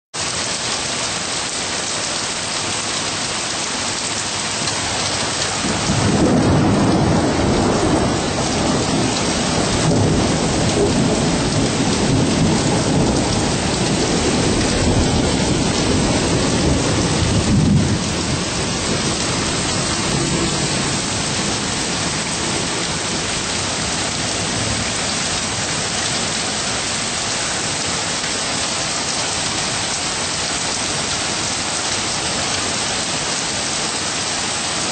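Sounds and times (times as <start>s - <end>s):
steady rain falling: 0.2s - 34.9s
thunder rumbling: 4.6s - 27.3s.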